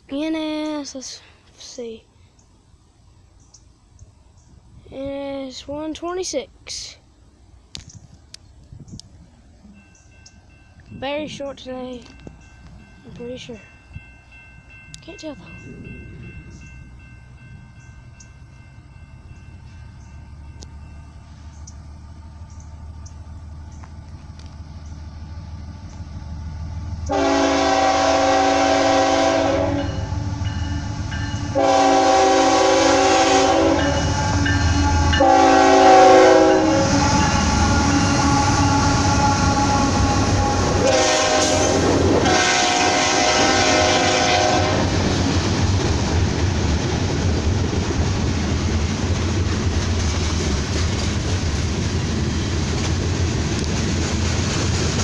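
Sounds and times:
diesel locomotive rumble: 0:00.0 - 0:55.0
train air horn blasts: 0:27.0 - 0:45.0.

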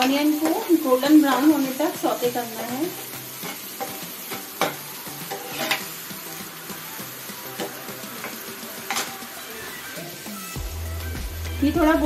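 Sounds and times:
onions sizzling in oil: 0:00.0 - 0:12.0
spoon scraping frying pan: 0:01.4 - 0:06.0.

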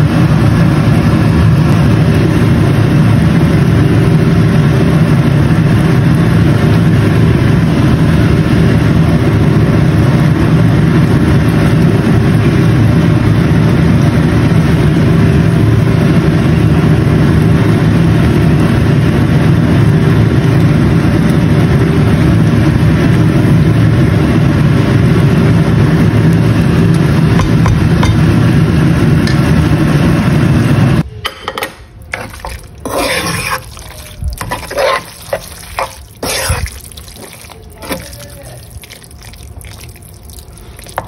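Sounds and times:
loud mechanical hum: 0:00.0 - 0:41.0
utensil scraping a pan: 0:32.1 - 0:39.4.

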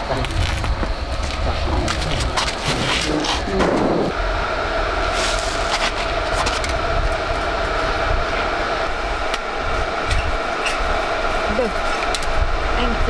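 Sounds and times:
arc welder crackling hiss: 0:00.0 - 0:04.2.

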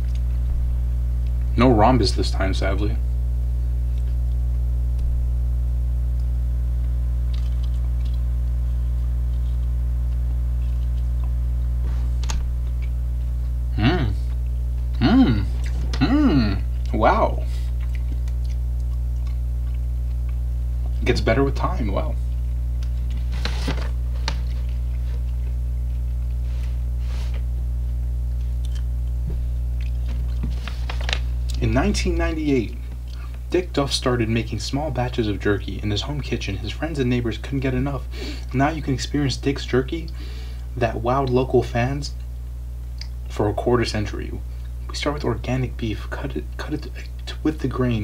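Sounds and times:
person chewing jerky: 0:00.0 - 0:00.4, 0:06.1 - 0:13.6, 0:14.2 - 0:17.0, 0:17.6 - 0:21.0, 0:22.1 - 0:27.4, 0:28.3 - 0:31.6, 0:32.7 - 0:33.5, 0:42.2 - 0:43.2
electrical mains hum: 0:00.0 - 0:48.0.

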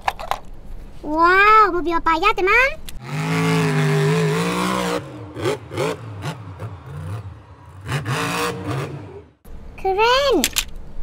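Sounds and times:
monster truck engine revving: 0:03.0 - 0:09.4.

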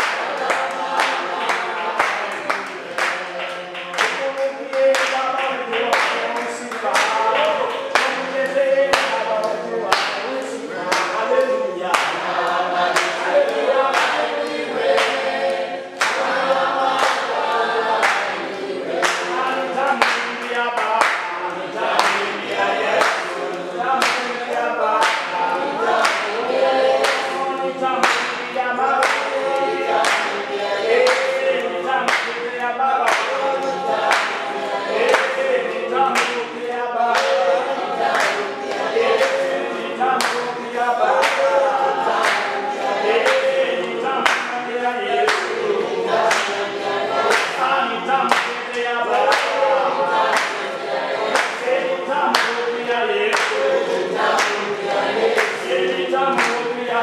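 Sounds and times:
choir singing: 0:00.0 - 0:57.0
steady hand clapping: 0:00.0 - 0:57.0.

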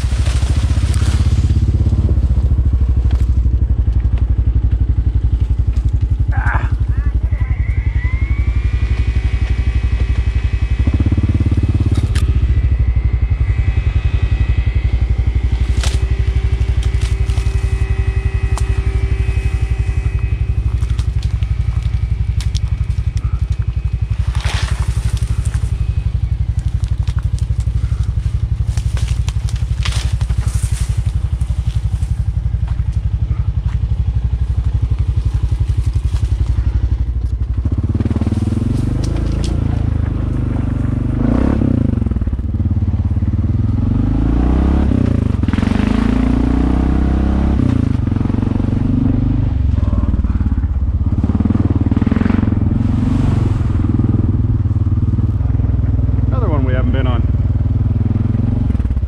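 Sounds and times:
crackling and scraping: 0:00.0 - 0:40.9
atv engine revving: 0:00.0 - 0:59.0.

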